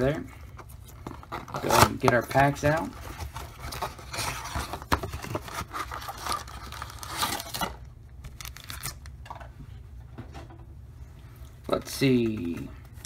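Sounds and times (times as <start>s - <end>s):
foil card packs rustling: 0.0s - 9.0s.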